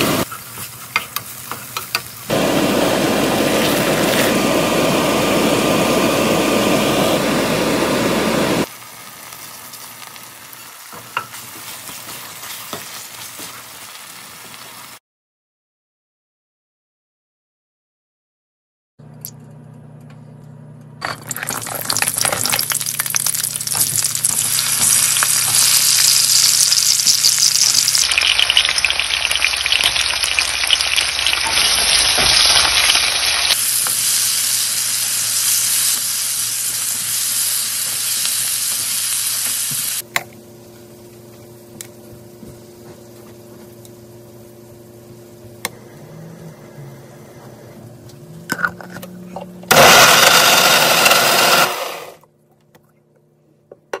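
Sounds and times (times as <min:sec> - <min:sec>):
food sizzling in hot oil: 0:00.0 - 0:15.0, 0:21.0 - 0:40.0.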